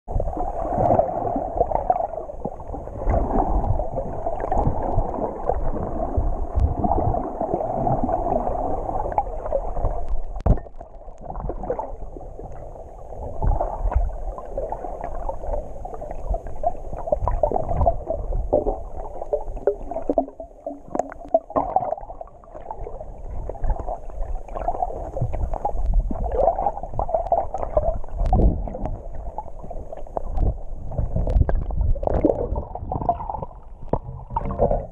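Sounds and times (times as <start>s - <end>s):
low underwater rumbling: 0.1s - 34.9s
water sloshing and gurgling: 0.1s - 34.9s.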